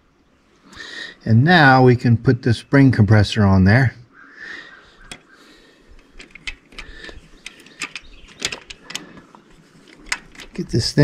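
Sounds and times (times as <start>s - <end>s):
light metal clicks and taps: 5.0s - 5.3s, 5.9s - 10.7s.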